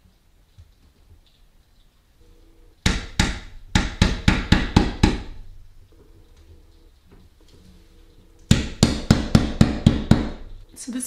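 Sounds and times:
tool knocking against wall: 2.8 - 5.4, 8.5 - 10.5.

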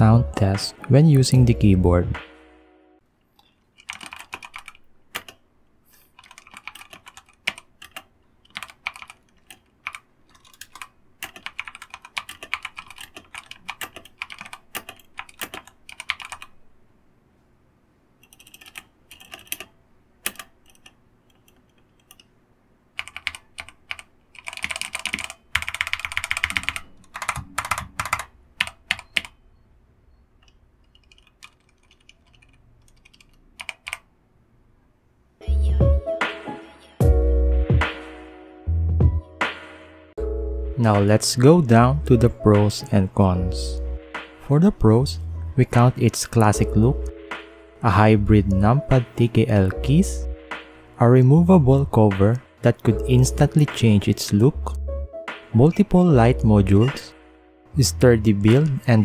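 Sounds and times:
mechanical keyboard typing: 3.8 - 5.4, 6.1 - 16.5, 18.2 - 22.3, 23.0 - 29.4, 30.4 - 34.1.

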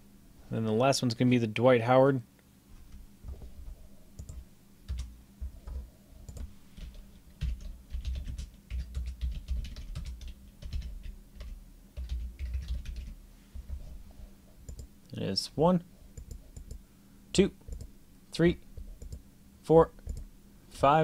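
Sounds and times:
typing on computer keyboard: 4.2 - 13.2, 14.7 - 14.9, 18.9 - 19.2.

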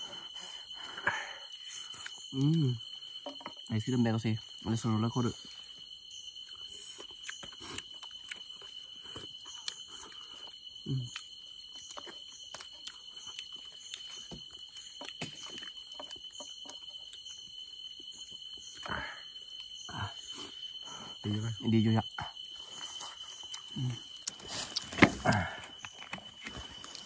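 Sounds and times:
night insects trilling: 0.0 - 27.0
dry leaves and bamboo rustling: 24.2 - 27.0.

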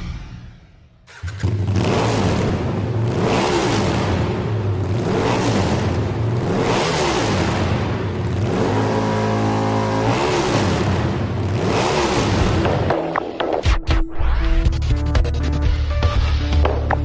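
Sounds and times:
engine revving: 1.0 - 12.9.

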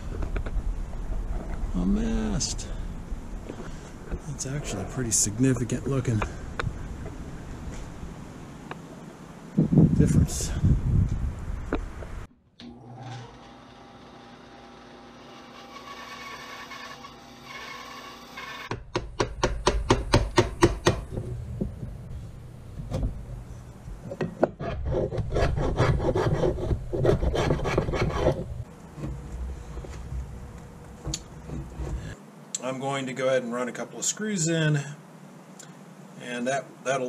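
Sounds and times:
bandsaw cutting wood: 12.6 - 18.8
rhythmic scraping on wood: 24.2 - 32.2.

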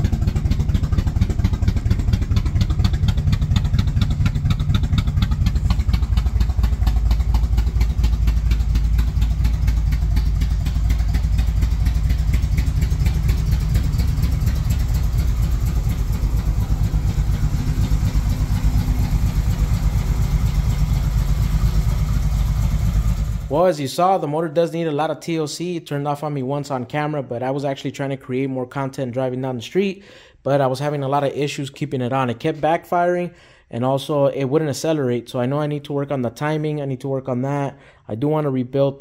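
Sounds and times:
car engine idling: 0.0 - 23.6.

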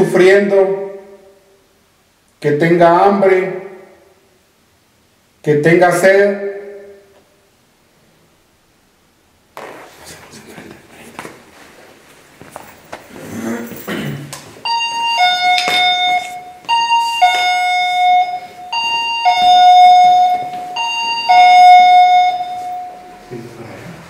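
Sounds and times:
two-note electronic ding-dong chime: 14.7 - 23.5.

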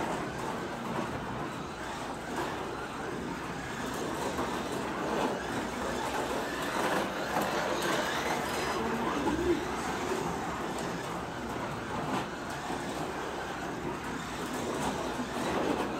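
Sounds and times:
slot car rumbling along track: 0.0 - 15.9.

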